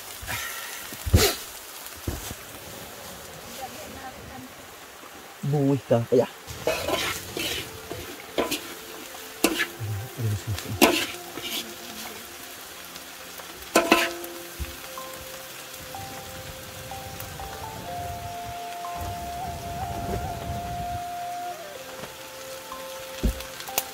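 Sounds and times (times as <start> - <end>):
vegetables sizzling in a wok: 0.0 - 23.9
spatula scraping and knocking wok: 6.5 - 9.8, 10.8 - 12.1, 13.7 - 14.3.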